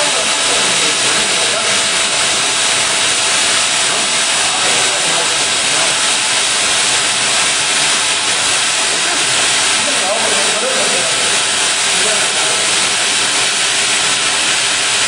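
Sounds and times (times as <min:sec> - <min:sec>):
welding tool hissing: 0:00.0 - 0:15.0.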